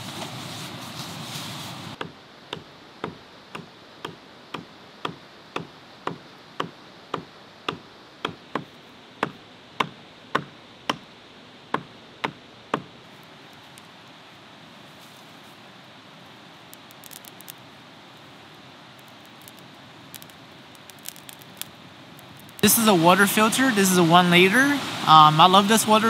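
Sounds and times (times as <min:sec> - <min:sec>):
hatchet chopping a log: 0:02.0 - 0:11.1, 0:11.7 - 0:12.9.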